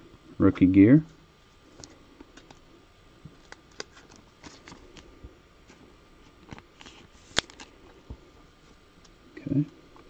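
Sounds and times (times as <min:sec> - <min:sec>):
cards and packaging clicking: 0:03.4 - 0:05.1, 0:06.4 - 0:07.7.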